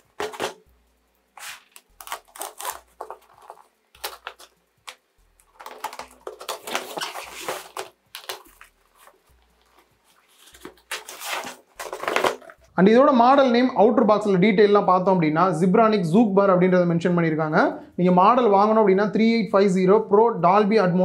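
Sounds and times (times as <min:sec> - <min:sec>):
plastic wrap crinkling: 0:01.4 - 0:12.7.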